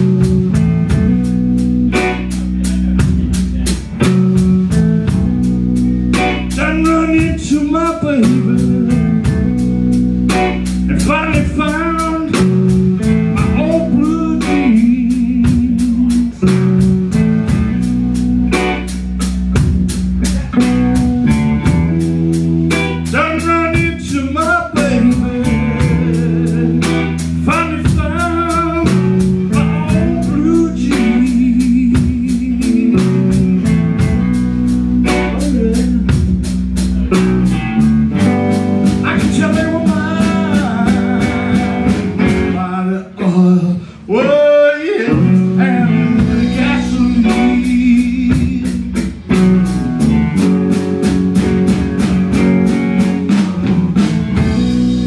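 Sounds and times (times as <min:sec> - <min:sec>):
live blues band playing: 0:00.0 - 0:55.0
man singing: 0:06.3 - 0:09.6, 0:10.7 - 0:17.2, 0:23.0 - 0:34.2, 0:35.1 - 0:37.2, 0:38.9 - 0:49.4.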